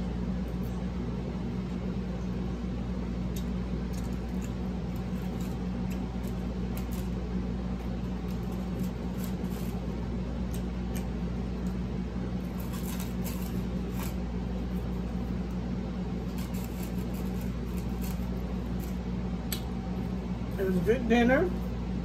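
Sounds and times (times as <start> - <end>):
steady low hum: 0.0 - 22.0
eating clicks and crinkles: 3.3 - 9.7.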